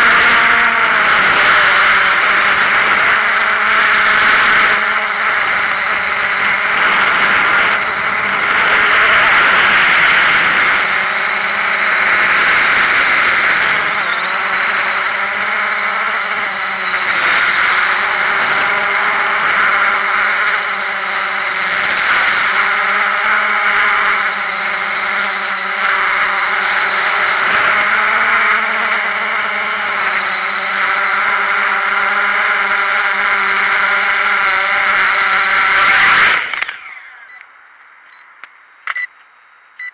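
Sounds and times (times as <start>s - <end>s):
drone propellers whining: 0.0s - 37.5s.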